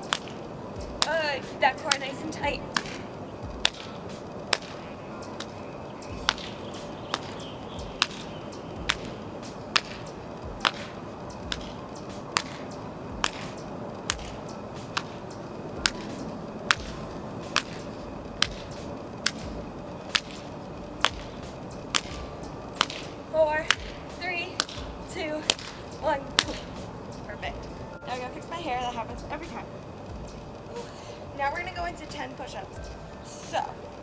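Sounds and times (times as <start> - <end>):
slaps from jumping jacks: 0.1 - 1.1, 2.7 - 5.6, 6.2 - 10.0, 10.6 - 15.2, 15.8 - 23.1, 23.7 - 24.0, 24.6 - 26.9.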